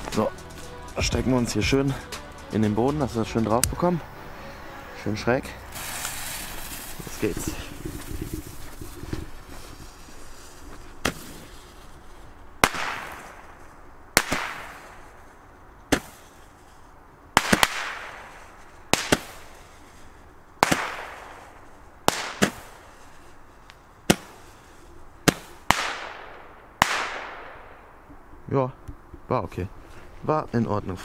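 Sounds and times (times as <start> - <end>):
firework hiss: 5.4 - 13.6.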